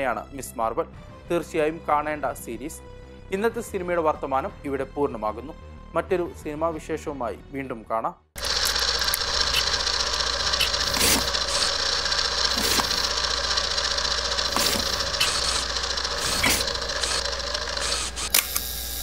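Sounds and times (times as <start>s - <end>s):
projector click: 8.4s - 18.8s
film projector whirring: 8.4s - 19.0s.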